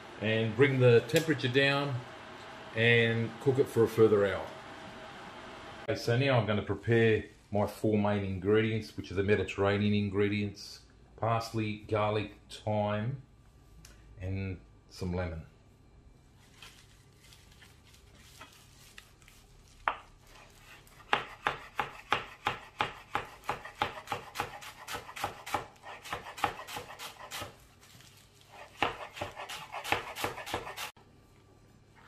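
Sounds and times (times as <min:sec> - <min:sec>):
knife chopping on cutting board: 0:20.9 - 0:27.6, 0:28.6 - 0:30.9.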